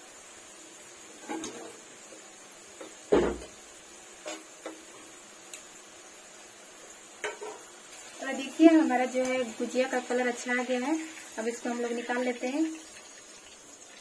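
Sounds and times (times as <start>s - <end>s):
food deep-frying in oil: 0.0s - 14.0s
knock: 3.1s - 3.5s.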